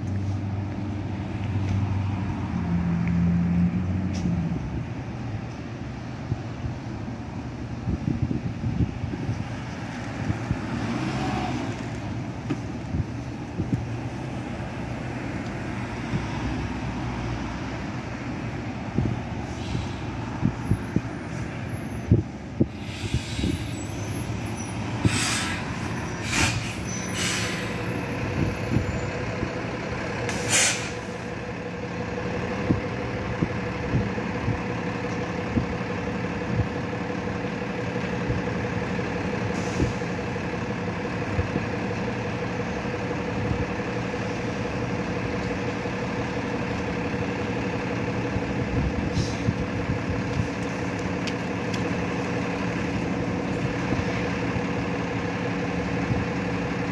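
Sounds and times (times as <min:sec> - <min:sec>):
bus engine idling: 0:00.0 - 0:56.9
air-brake hisses: 0:19.4 - 0:20.2, 0:22.7 - 0:27.9, 0:30.3 - 0:31.2, 0:49.1 - 0:49.5.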